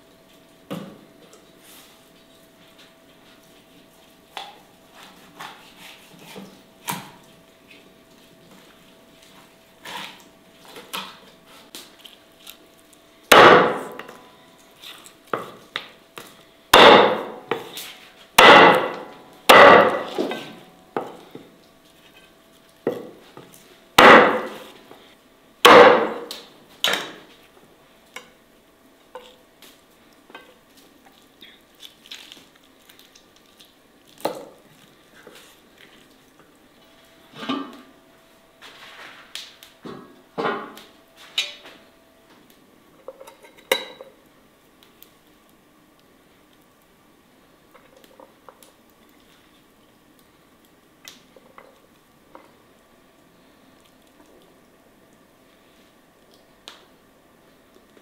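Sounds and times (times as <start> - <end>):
knife chopping on wooden board: 13.3 - 14.1, 16.7 - 17.7, 18.4 - 21.2, 24.0 - 24.7, 25.7 - 26.3.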